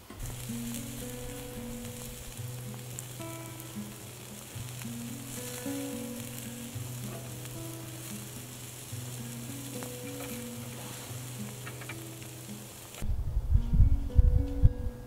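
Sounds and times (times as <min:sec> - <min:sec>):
meat sizzling over charcoal: 0:00.0 - 0:13.1
soft background music: 0:00.1 - 0:15.0.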